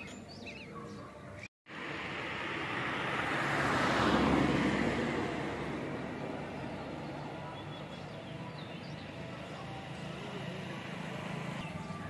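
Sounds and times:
birds chirping: 0.0s - 1.5s, 5.8s - 12.0s
rushing noise: 1.7s - 6.6s.

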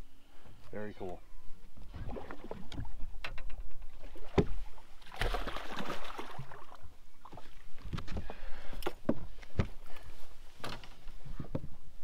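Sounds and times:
fish splashing at the surface: 5.0s - 6.8s.

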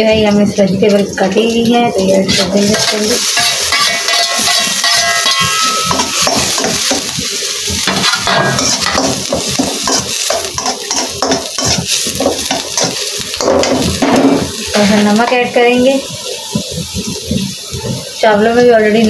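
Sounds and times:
vegetables sizzling in hot oil: 0.0s - 19.0s
metal spatula scraping a wok: 2.0s - 15.5s.

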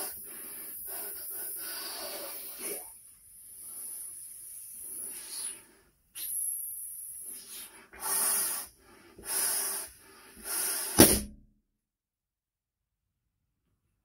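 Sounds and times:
puffs of breath into balloon: 0.0s - 11.2s
balloon popping: 10.6s - 11.4s.

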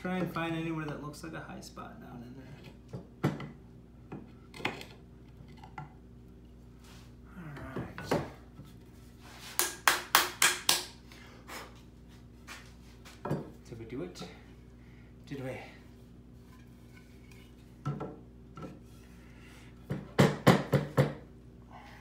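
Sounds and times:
workpiece scraping on bench: 16.3s - 17.8s, 18.6s - 19.6s.

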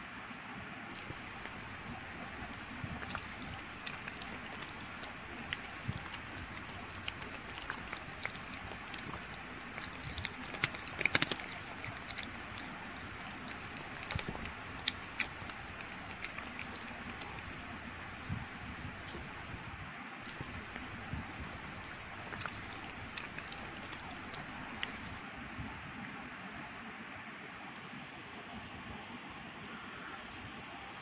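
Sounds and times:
steady background hiss: 0.0s - 31.0s
kitten licking: 0.9s - 25.2s.

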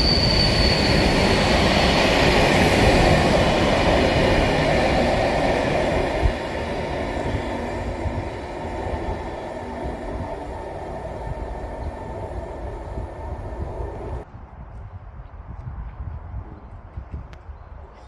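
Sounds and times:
train wheels rumbling on rails: 0.0s - 14.3s.

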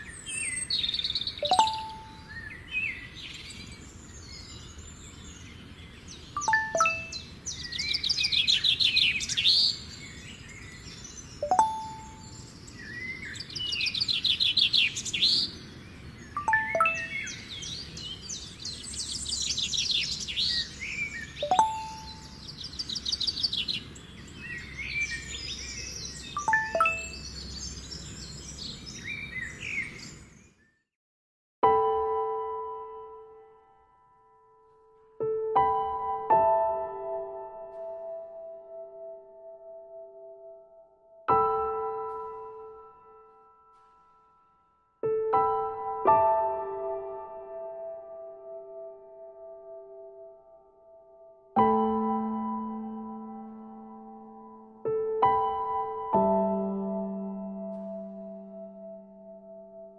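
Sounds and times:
birds singing: 0.0s - 30.8s
message notification chime: 1.4s - 2.2s, 6.4s - 7.2s, 11.4s - 12.2s, 16.4s - 17.3s, 21.4s - 22.3s, 26.4s - 27.2s.

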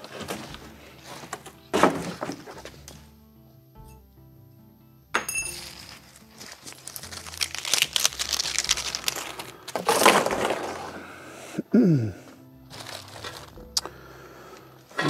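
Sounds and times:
background music: 0.0s - 15.0s
plastic straps crinkling: 5.5s - 11.0s, 12.6s - 14.0s
straps dropped into cardboard box: 5.5s - 11.0s.

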